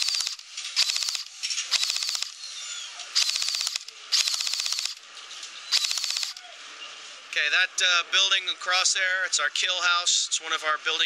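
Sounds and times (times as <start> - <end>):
airsoft gun full-auto bursts: 0.0 - 2.4, 3.1 - 5.0, 5.7 - 6.4.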